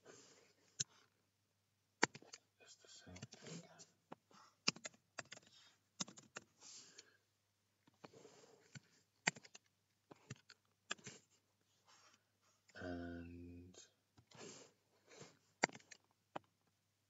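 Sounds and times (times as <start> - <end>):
keyboard typing: 2.0 - 2.4, 4.6 - 6.5, 8.6 - 11.3, 15.6 - 16.1.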